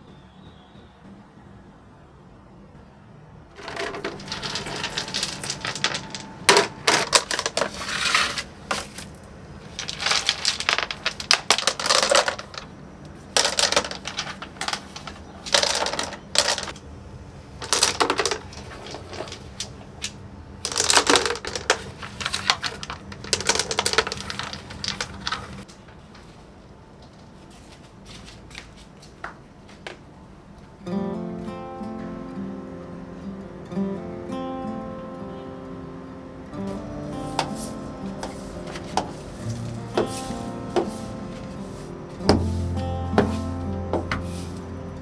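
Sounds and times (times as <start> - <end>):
pebbles clattering into plastic bucket: 3.6 - 16.8, 17.6 - 25.7.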